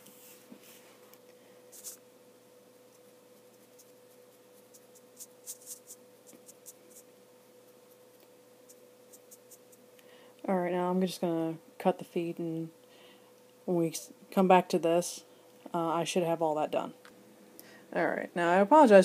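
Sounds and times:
faint steady hum: 0.0 - 19.0
paintbrush scratching plastic: 2.9 - 7.1.

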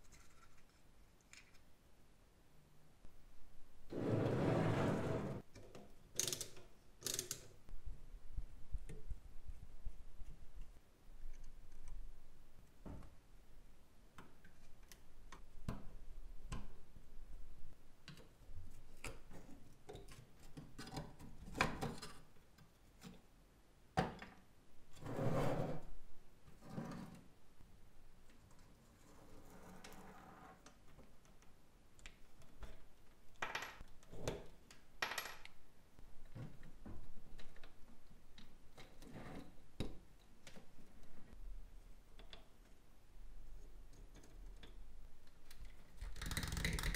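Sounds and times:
toy rubbing slide on table: 3.9 - 5.4.

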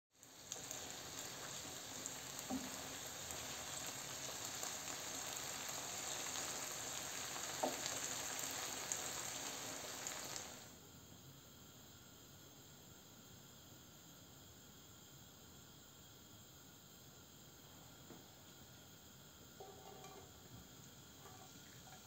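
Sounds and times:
food sizzling in a frying pan: 0.1 - 22.0
utensil knocking on pan: 19.6 - 20.3
spatula stirring in a pan: 19.6 - 22.0.

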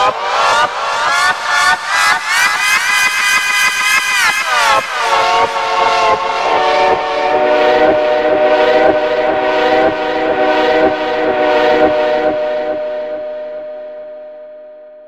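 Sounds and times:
multi-tone train horn: 5.3 - 13.7.

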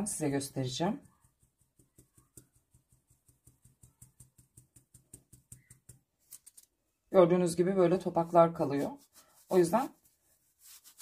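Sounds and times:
flour sieve ticking: 0.0 - 6.6.

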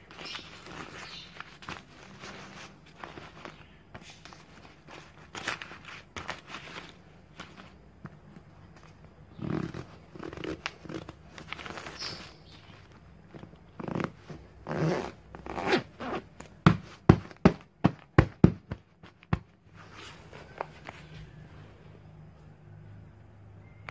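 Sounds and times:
zipper being pulled: 9.3 - 12.0, 13.7 - 16.3.

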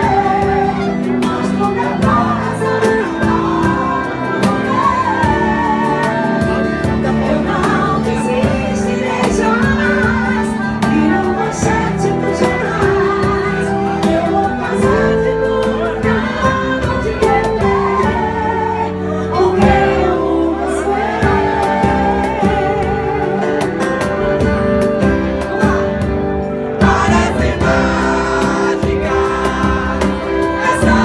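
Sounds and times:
bass guitar: 0.0 - 31.0
woman singing into a microphone: 0.0 - 31.0
drums beat: 19.5 - 31.0.

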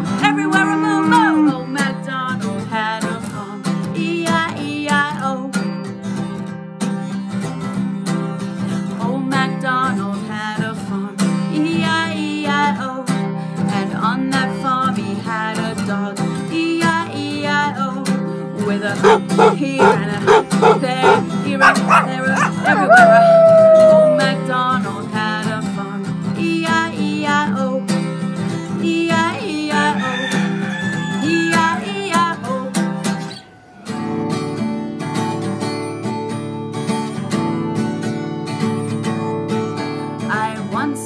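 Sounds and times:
woman singing: 0.0 - 5.7, 8.9 - 28.0, 28.7 - 30.2, 31.2 - 32.9, 40.2 - 41.0
strummed acoustic guitar: 0.0 - 22.7
woman making animal noises: 0.2 - 1.6, 19.0 - 24.4.

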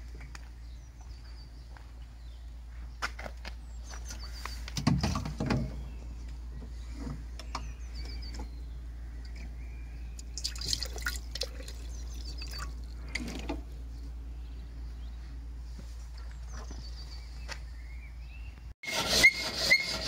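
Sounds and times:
water dripping into a metal tank: 10.2 - 13.0.

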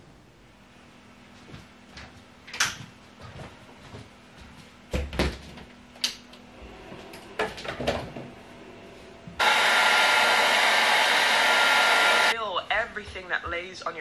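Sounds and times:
hair dryer blowing: 9.4 - 12.4.

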